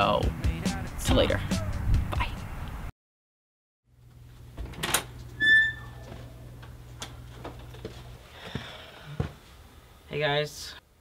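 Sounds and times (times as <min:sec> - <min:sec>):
door hinge squeak: 0:05.4 - 0:06.0.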